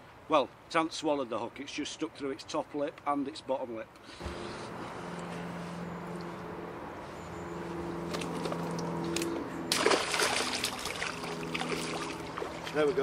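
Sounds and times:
low hum: 4.2 - 13.0
water sloshing: 7.5 - 13.0
fish splashing in water: 7.9 - 12.9.

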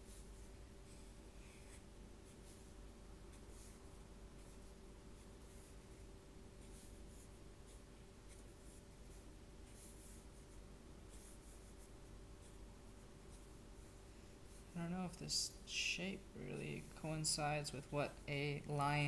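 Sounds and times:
marker scratching on paper: 0.0 - 14.8.

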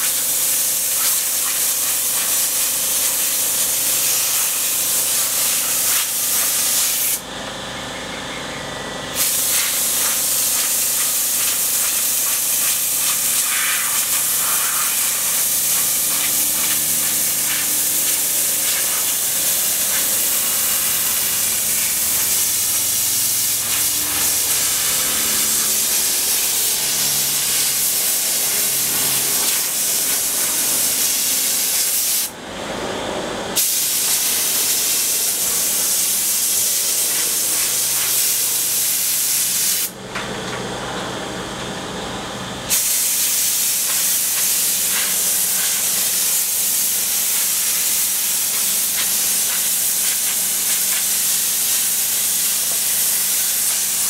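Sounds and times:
air blow gun hissing: 0.0 - 7.2, 9.1 - 32.3, 33.6 - 40.0, 42.7 - 54.0.

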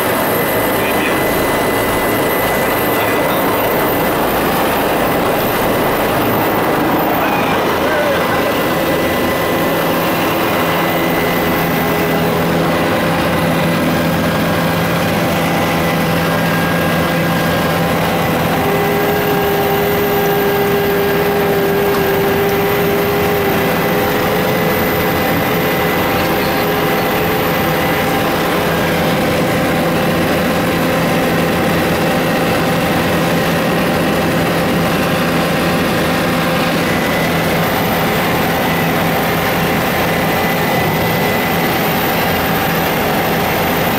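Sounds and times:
higher hum: 0.0 - 32.0
helicopter turbine and rotor drone: 0.0 - 43.9.

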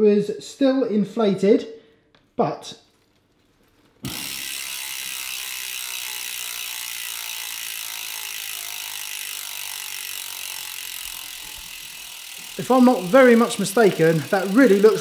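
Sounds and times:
bike freehub ratchet buzzing: 4.0 - 15.0.

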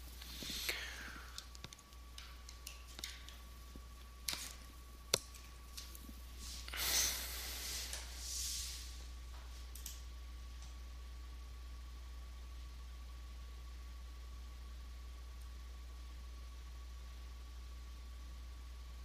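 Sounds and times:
steady electrical hum: 0.0 - 19.0
breathy rushes of noise: 6.4 - 9.0.

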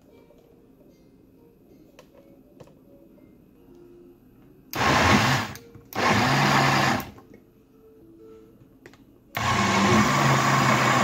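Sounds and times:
blender motor running: 4.8 - 7.1, 9.4 - 11.0.

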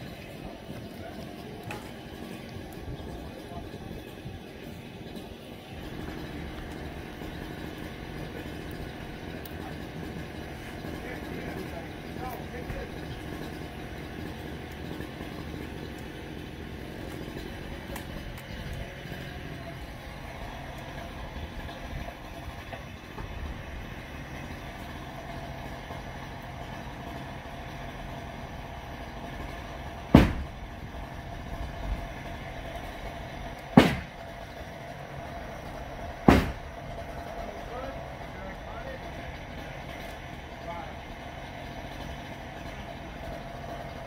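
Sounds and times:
heavy machine engine running: 0.0 - 44.0
loud crashing impacts: 30.0 - 30.9, 33.7 - 34.4, 36.1 - 37.1.

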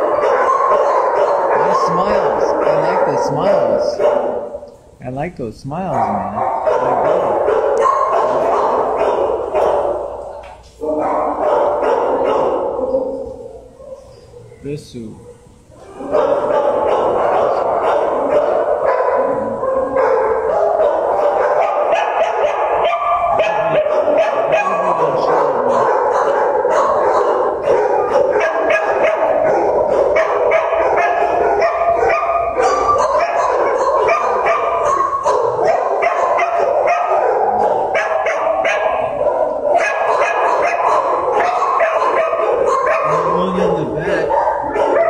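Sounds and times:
many dogs barking: 0.0 - 4.7, 5.8 - 45.0.

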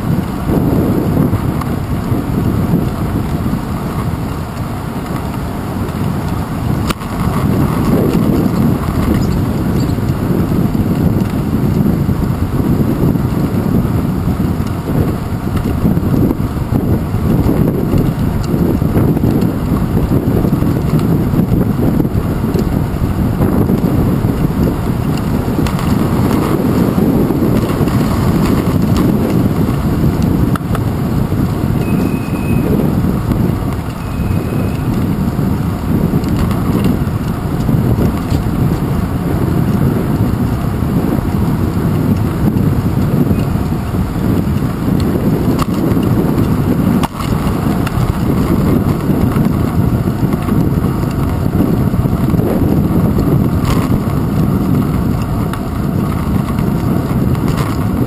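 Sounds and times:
bicycle rolling on pavement: 0.0 - 58.0
tyre and road noise: 0.0 - 58.0
wind buffeting microphone: 0.0 - 58.0.

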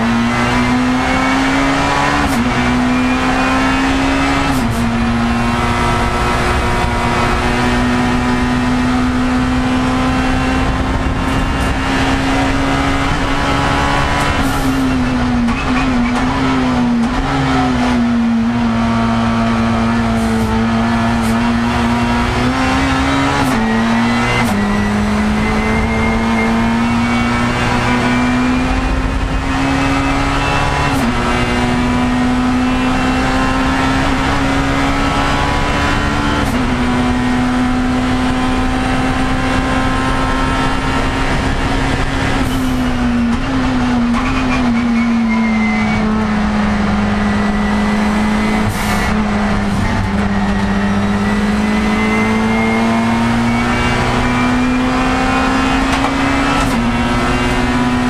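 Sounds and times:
race car engine revving: 0.0 - 58.0
road and tyre noise: 0.0 - 58.0.

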